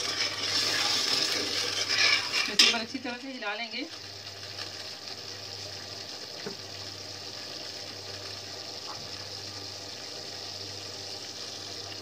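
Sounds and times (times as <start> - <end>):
gravy simmering hiss: 0.0 - 12.0
bubbling sauce popping: 4.0 - 9.3.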